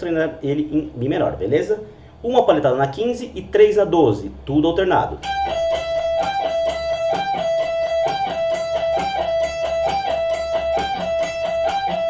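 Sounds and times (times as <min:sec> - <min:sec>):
electric guitar lick: 0:05.1 - 0:12.0.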